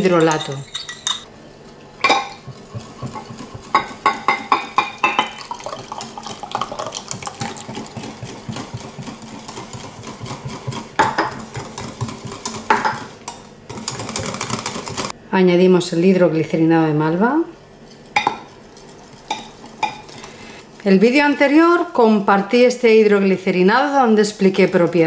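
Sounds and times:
whisk clattering: 2.0 - 15.1
whisk clicking and scraping on glass: 2.2 - 15.1.

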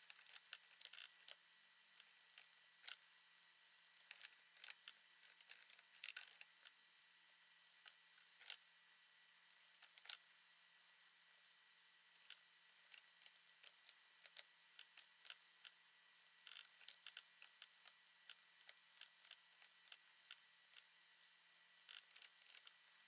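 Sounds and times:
mouse and keyboard clicking: 4.0 - 6.7, 9.7 - 10.2, 21.9 - 22.8.

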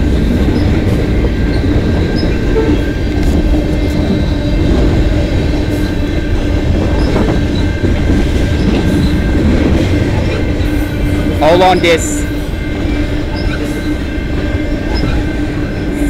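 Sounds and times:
train wheels rumbling on rails: 0.0 - 16.0.

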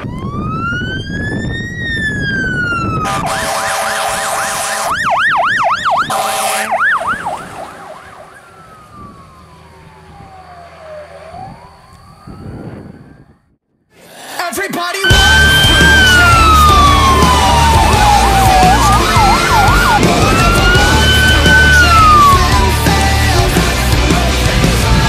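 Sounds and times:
fire engine siren: 0.0 - 13.6, 15.0 - 24.1
fire engine horn blasts: 2.9 - 5.1, 6.0 - 7.7, 15.0 - 22.9.

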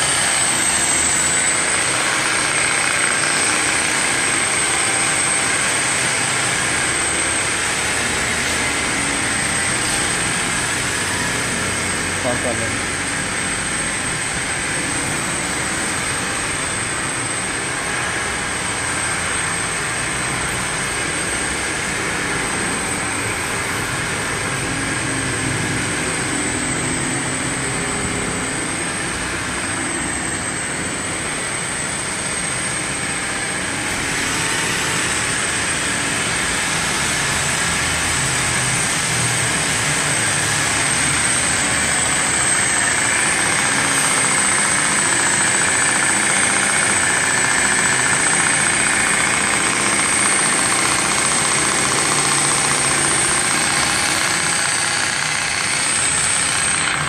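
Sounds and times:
machine whining and hissing: 0.0 - 57.0.

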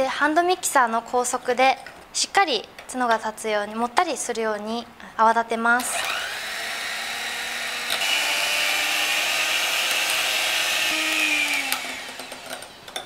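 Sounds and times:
electric hand mixer whipping: 5.9 - 13.0.

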